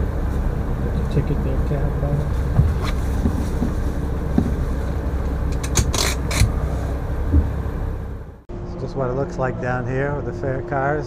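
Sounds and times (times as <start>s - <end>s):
vehicle low rumble: 0.0s - 11.0s
sharp clicks and scrapes: 5.5s - 6.6s.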